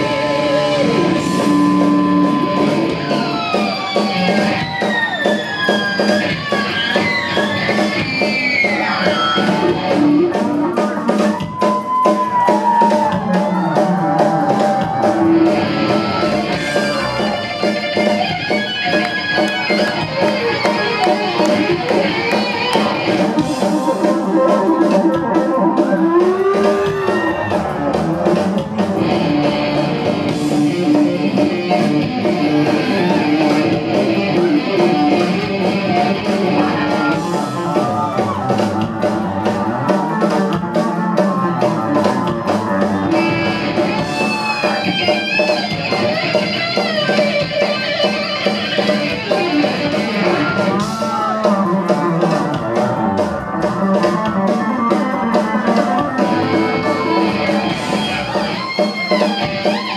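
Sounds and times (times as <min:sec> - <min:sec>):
live rock music: 0:00.0 - 0:59.9.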